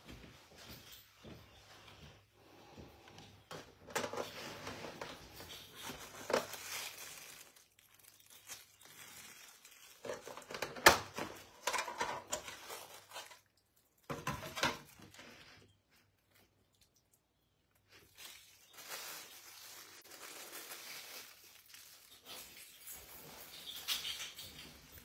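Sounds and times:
plastic container crinkling: 0:03.5 - 0:16.9, 0:17.8 - 0:25.0.

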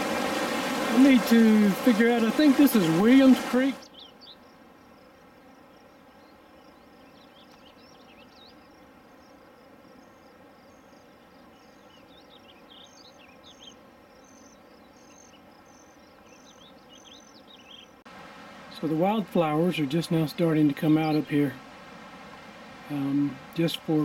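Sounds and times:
soft steady rush: 0:00.0 - 0:03.8, 0:18.1 - 0:24.0
songbirds chirping and whistling: 0:00.0 - 0:04.5, 0:06.0 - 0:24.0.

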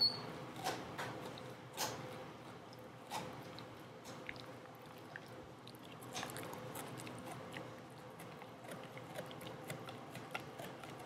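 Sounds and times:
chewing clicks: 0:02.7 - 0:11.0
dog crunching rawhide: 0:05.9 - 0:11.0.

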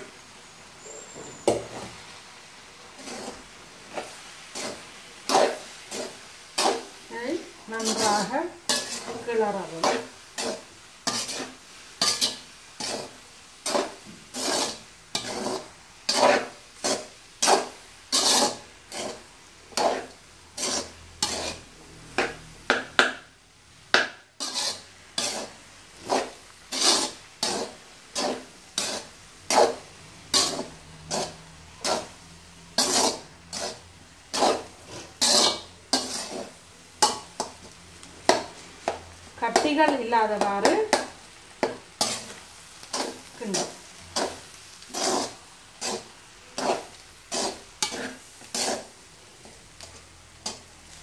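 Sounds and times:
metal spoon scraping pot: 0:07.8 - 0:22.4, 0:24.4 - 0:32.2, 0:32.8 - 0:37.5, 0:43.0 - 0:48.9.

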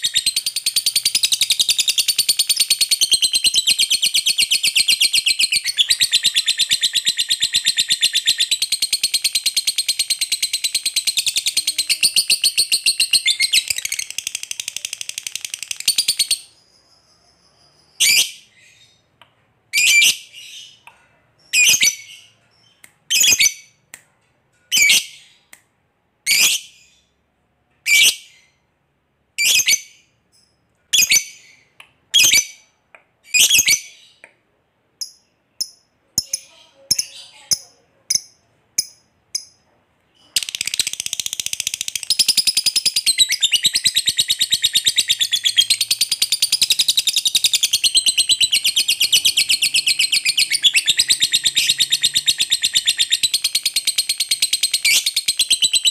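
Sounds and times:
sharp high bird calls: 0:41.8 - 0:55.9.

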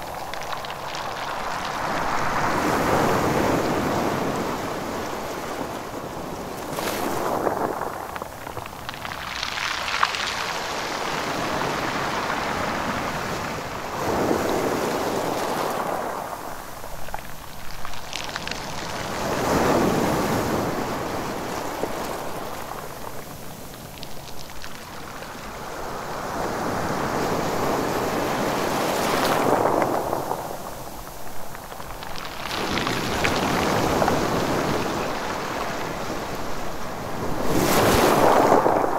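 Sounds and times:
light crackling: 0:00.0 - 0:03.9, 0:06.5 - 0:11.2, 0:21.0 - 0:25.6, 0:28.7 - 0:36.9
waves surging on rocks: 0:00.0 - 0:38.9.

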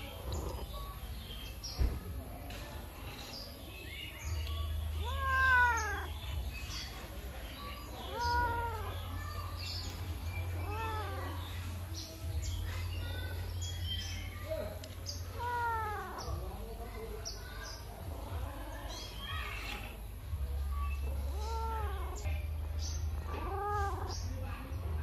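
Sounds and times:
cat meowing: 0:05.0 - 0:06.2, 0:08.0 - 0:09.0, 0:10.6 - 0:11.4, 0:15.3 - 0:16.4, 0:21.3 - 0:22.2, 0:23.3 - 0:24.1.

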